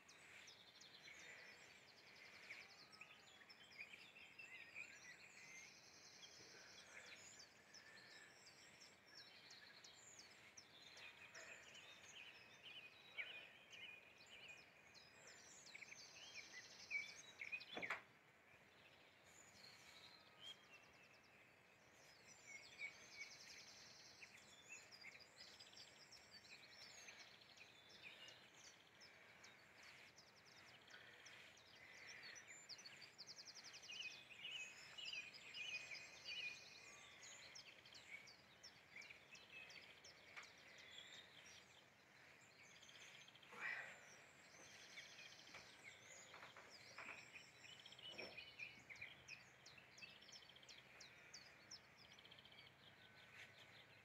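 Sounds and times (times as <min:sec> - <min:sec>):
birds chirping and trilling: 0:00.0 - 0:54.0.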